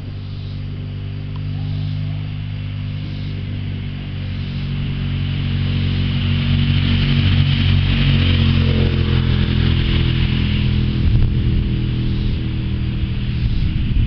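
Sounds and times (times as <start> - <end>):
thunder rumbling: 6.8 - 14.0.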